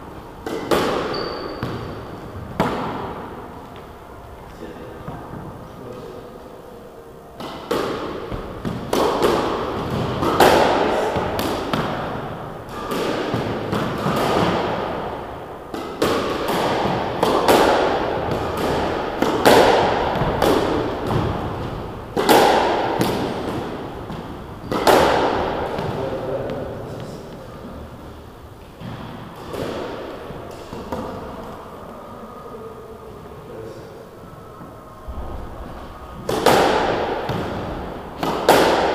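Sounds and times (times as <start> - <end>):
squash ball hits ringing: 0.4 - 3.3, 7.4 - 26.6, 36.2 - 38.9.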